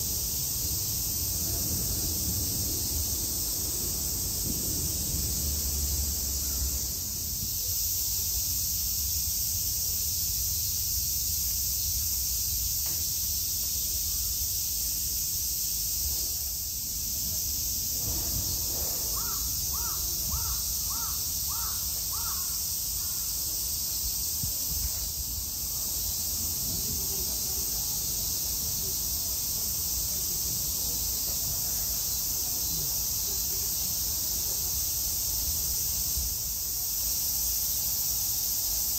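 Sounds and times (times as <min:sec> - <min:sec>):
high-pitched insect drone: 0:00.0 - 0:38.9
crow cawing: 0:19.1 - 0:23.1.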